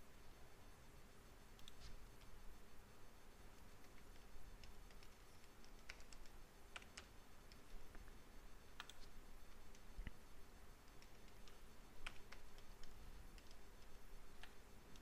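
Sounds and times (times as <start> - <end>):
low room hiss: 0.0 - 15.0
computer keyboard keystrokes: 3.8 - 7.7, 8.8 - 9.1, 10.8 - 15.0.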